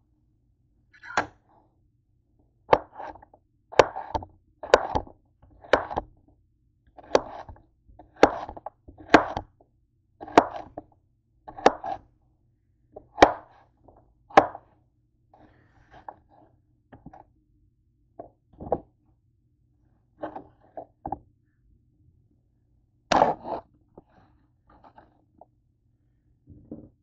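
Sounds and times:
knife scraping board: 2.7s - 5.0s, 7.0s - 9.4s, 10.2s - 10.8s, 11.5s - 12.0s, 20.2s - 20.9s, 23.1s - 23.7s
knife chopping on cutting board: 2.7s - 6.1s, 7.0s - 9.4s, 10.2s - 10.8s, 11.5s - 12.0s, 13.1s - 13.6s, 14.3s - 14.6s.

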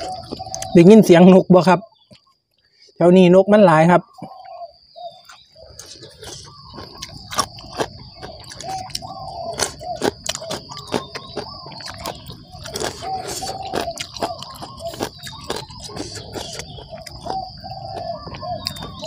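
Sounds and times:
eating clicks: 0.0s - 0.9s, 5.2s - 19.0s
birds chirping: 0.0s - 19.0s
high-pitched insect drone: 3.0s - 19.0s.

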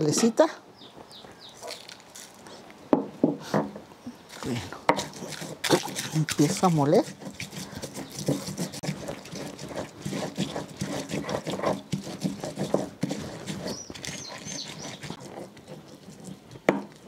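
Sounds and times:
stone pestle grinding and crunching: 1.6s - 2.4s, 4.3s - 17.0s.

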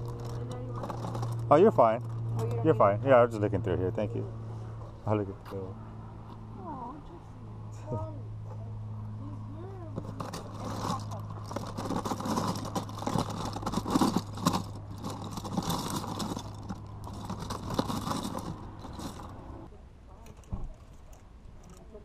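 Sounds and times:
plastic bricks clattering: 10.0s - 19.5s.

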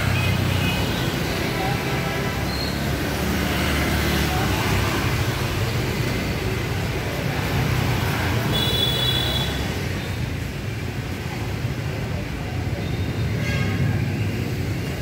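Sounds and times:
motorbike passing: 0.0s - 8.6s
steady traffic rumble: 0.0s - 15.0s.

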